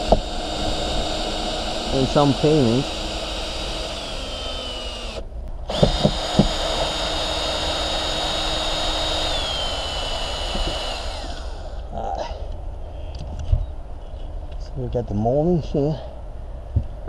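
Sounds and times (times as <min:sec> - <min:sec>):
cordless drill motor whine: 0:00.0 - 0:11.9.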